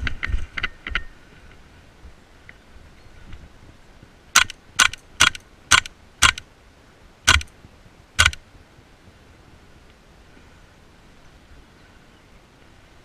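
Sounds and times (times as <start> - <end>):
airsoft gun shots: 4.4 - 6.4, 7.3 - 7.5, 8.2 - 8.4.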